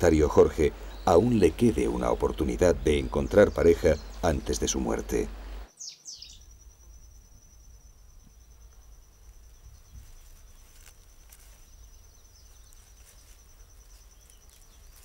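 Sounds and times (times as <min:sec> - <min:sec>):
insect pulsing trill: 0:00.0 - 0:15.0
soft ticks and rustles: 0:09.2 - 0:15.0.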